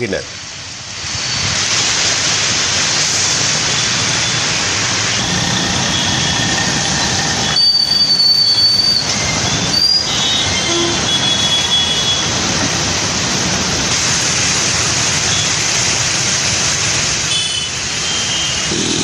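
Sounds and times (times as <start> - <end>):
tyres rushing through flood water: 0.1 - 19.0
bus pushing through water: 2.9 - 18.8.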